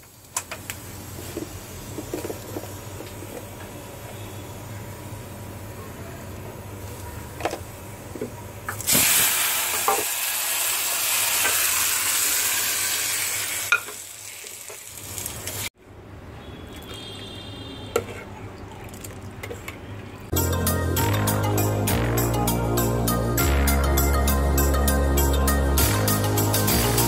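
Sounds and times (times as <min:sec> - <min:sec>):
hot oil sizzling: 0:00.0 - 0:03.3, 0:08.7 - 0:15.8.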